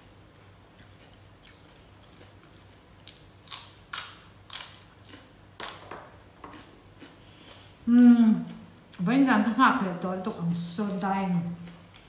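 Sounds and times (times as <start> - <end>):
crunchy vegetable chewing: 0.7 - 5.8, 6.4 - 8.6.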